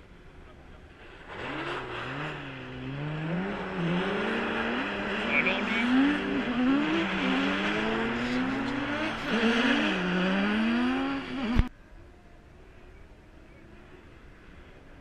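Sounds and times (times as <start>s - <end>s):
race car engines revving: 0.0s - 11.7s.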